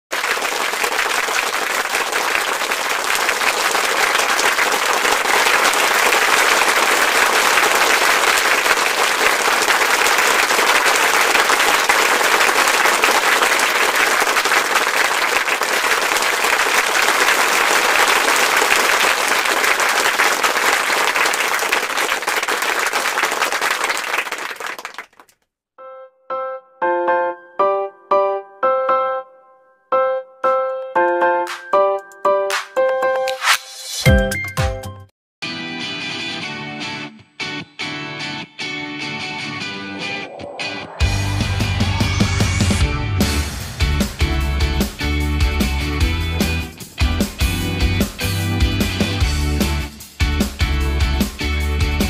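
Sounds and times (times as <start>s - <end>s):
applause: 0.0s - 25.5s
piano notes: 25.8s - 33.4s.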